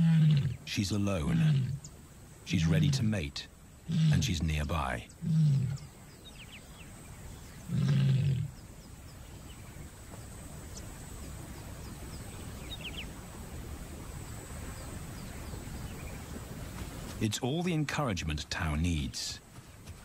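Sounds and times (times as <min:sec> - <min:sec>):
lioness calling: 0:00.0 - 0:01.9, 0:02.5 - 0:06.0, 0:07.6 - 0:08.6.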